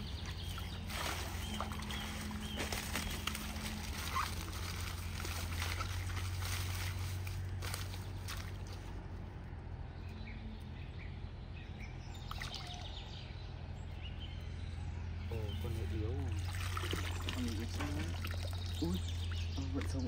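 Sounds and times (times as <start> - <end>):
shallow water sloshing: 0.0 - 8.9, 16.2 - 19.9
small splashes and clicks: 16.4 - 18.9.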